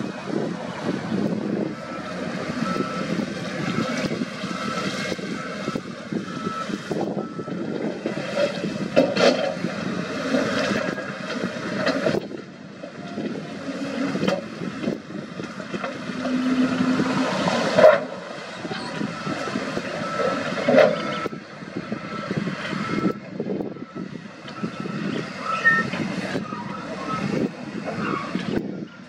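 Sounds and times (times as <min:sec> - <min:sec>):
diesel engine working under load: 0:00.0 - 0:29.0.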